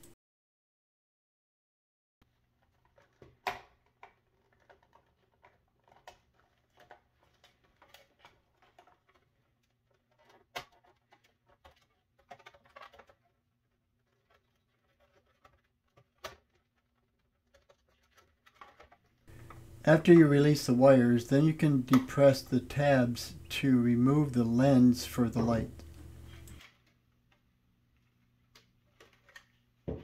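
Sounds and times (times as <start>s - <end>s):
wire handling rustles: 2.7s - 20.1s
faint low hum: 19.3s - 28.7s.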